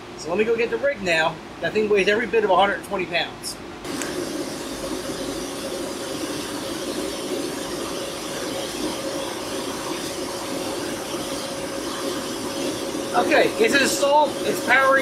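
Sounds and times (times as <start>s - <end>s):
cooling fans whirring: 0.0s - 15.0s
steady whine: 3.8s - 15.0s.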